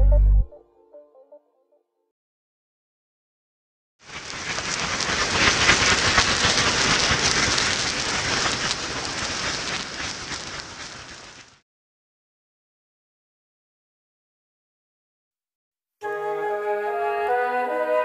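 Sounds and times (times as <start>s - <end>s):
flares burning with crackling hiss: 4.0s - 11.6s.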